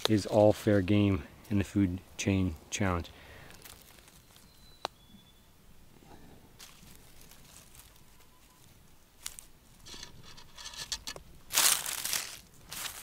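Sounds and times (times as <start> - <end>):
hand rustling dry leaves: 3.5 - 4.5, 6.6 - 13.0.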